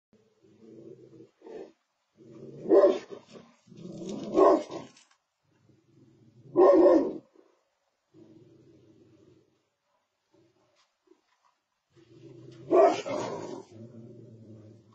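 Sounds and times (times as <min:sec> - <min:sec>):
dog growling: 0:00.4 - 0:05.0, 0:12.0 - 0:14.9
dog barking: 0:02.6 - 0:03.2, 0:04.3 - 0:04.8, 0:06.5 - 0:07.3, 0:12.7 - 0:13.6.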